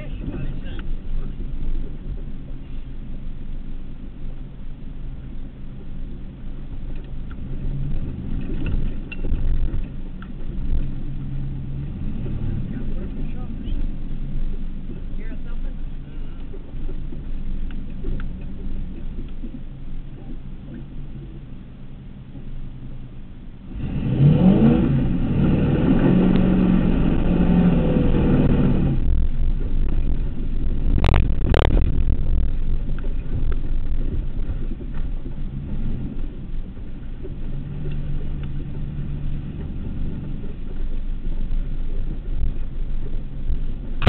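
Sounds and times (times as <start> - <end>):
truck engine revving: 10.5 - 14.2, 23.6 - 34.7.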